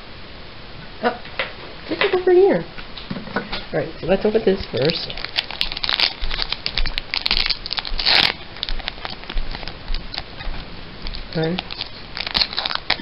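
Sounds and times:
foil pack crinkling and tearing: 4.7s - 13.0s.

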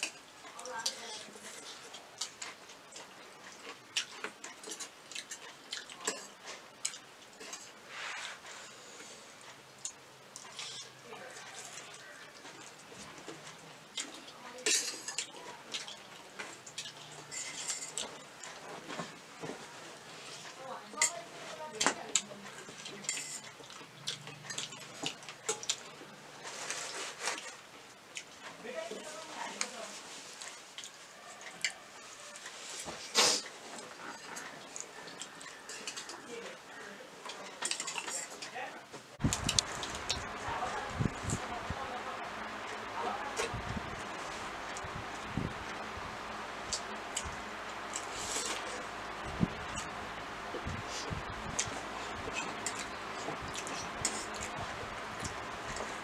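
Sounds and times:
forks scraping on metal plates: 23.0s - 23.5s.

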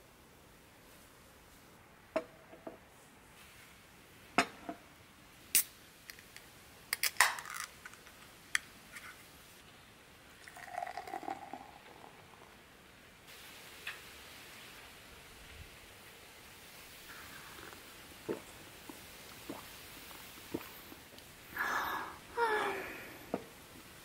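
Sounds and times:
can opening crack and hiss: 5.4s - 9.3s, 13.3s - 14.9s
beer pouring into a glass: 10.3s - 12.6s.

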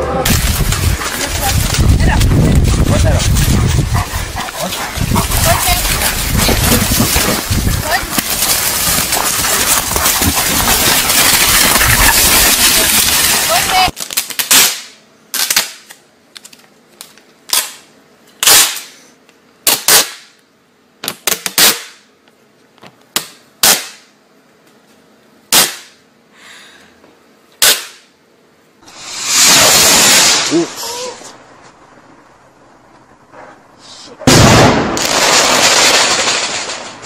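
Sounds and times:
sharp cracks or pops: 6.3s - 17.8s.

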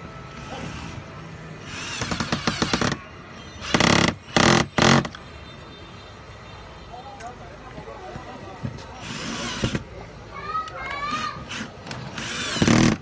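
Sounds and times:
cordless drill driving screws: 1.6s - 3.0s, 3.6s - 5.1s, 9.0s - 9.9s, 10.8s - 13.0s.

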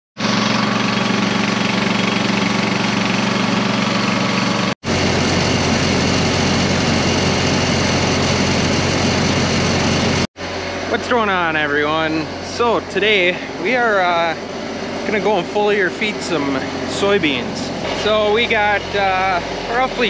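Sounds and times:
farm machinery engine running: 0.2s - 20.0s.

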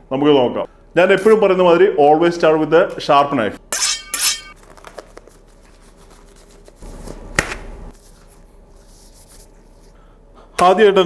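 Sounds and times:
rubber gloves rustling: 4.5s - 10.1s
glove snapping: 7.3s - 7.7s.

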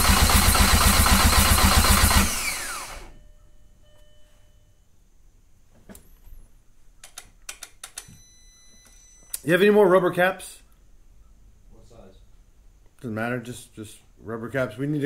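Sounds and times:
starter cranking engine: 0.0s - 3.1s
starter whining down: 0.0s - 3.2s.

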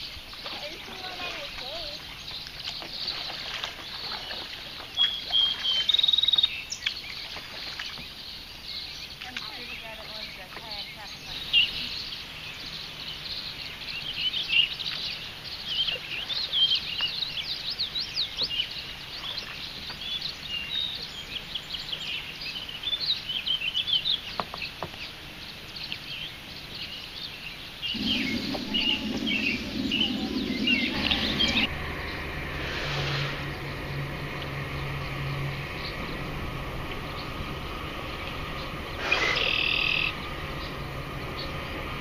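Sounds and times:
marsh birds chirping: 0.0s - 42.0s
low rushing noise: 27.8s - 42.0s
steady low hum: 27.8s - 42.0s.

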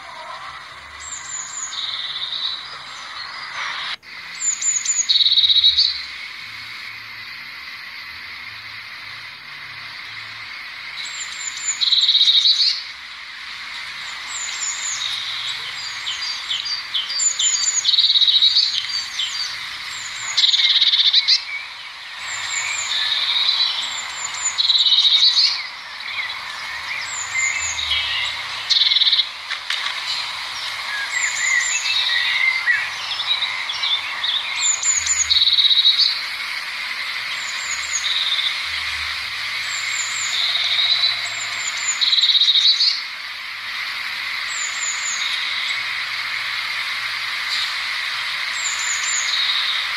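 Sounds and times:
bird singing high notes and trill: 0.0s - 6.1s, 13.9s - 38.8s
small birds chirping: 0.0s - 49.9s.

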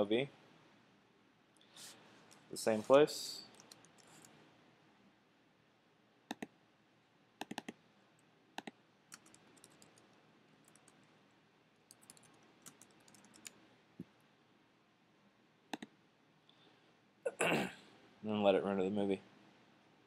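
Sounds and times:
computer keyboard keystrokes: 3.5s - 4.3s, 7.4s - 7.8s, 8.6s - 11.0s, 11.9s - 13.6s.

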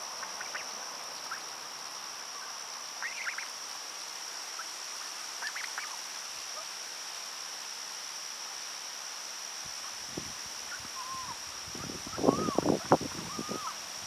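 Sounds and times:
high-pitched insect drone: 0.0s - 14.0s.

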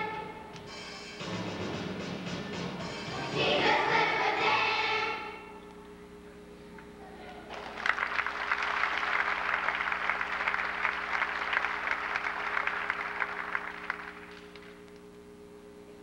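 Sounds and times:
steady low hum: 0.0s - 16.0s
audience applauding: 7.5s - 14.8s.

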